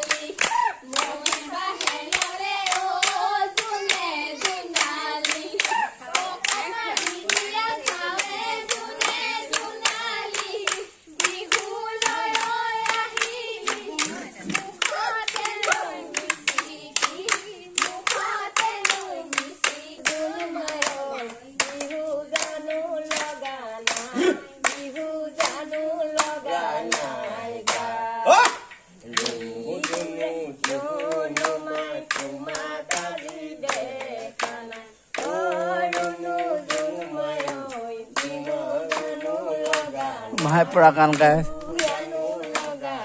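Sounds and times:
hand-clapping: 0.0 - 43.0
women singing together: 0.0 - 43.0.

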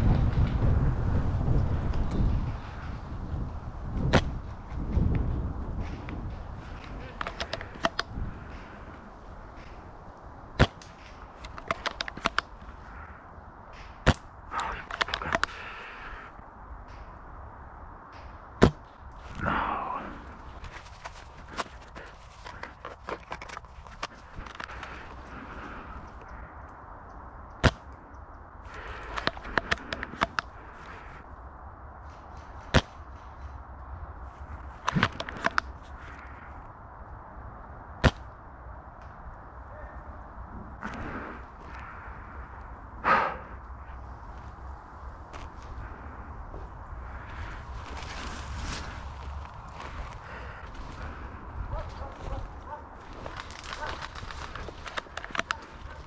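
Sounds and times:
airsoft gun clicks: 4.1 - 8.8, 9.6 - 13.1, 13.7 - 15.9, 20.6 - 25.4, 26.0 - 31.0, 34.8 - 36.4, 53.2 - 56.0.

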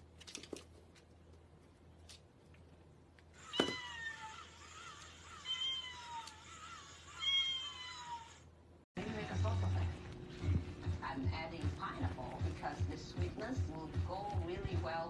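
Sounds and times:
cat meowing: 3.4 - 8.4.

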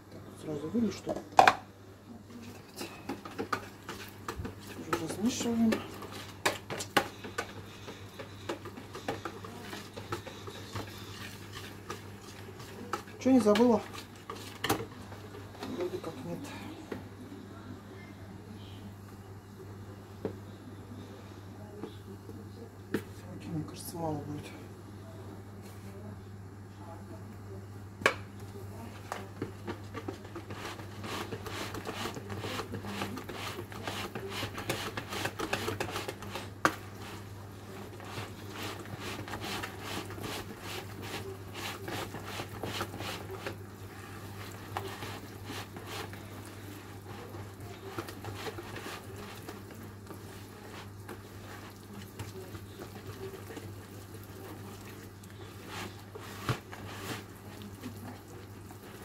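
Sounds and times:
whisk clicking and scraping in bowl: 2.4 - 16.1, 29.1 - 59.0
whisk knocking against bowl: 3.1 - 14.9.

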